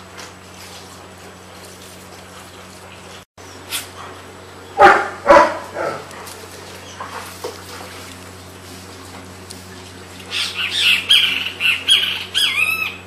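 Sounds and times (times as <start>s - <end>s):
dog barking: 4.8s - 6.3s.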